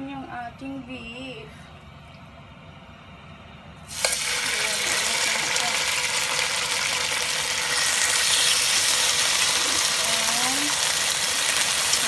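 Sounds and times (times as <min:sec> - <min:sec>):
beef sizzling in hot oil: 0:03.9 - 0:12.0.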